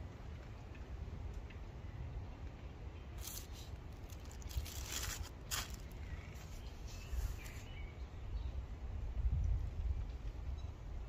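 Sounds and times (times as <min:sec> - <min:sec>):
wind rumble on microphone: 0:00.0 - 0:11.0
plastic snack packet crinkling: 0:03.2 - 0:06.0.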